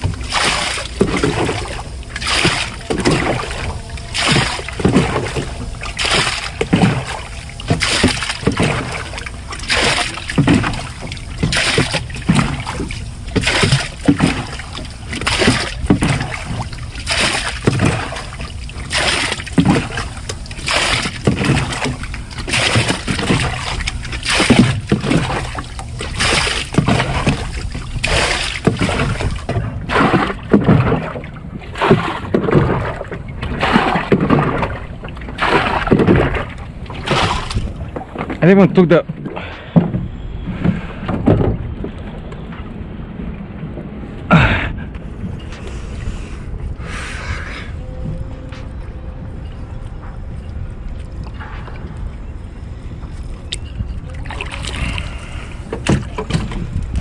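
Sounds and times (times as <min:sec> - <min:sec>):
water scooped and splashed: 0:00.0 - 0:38.3, 0:53.5 - 0:57.0.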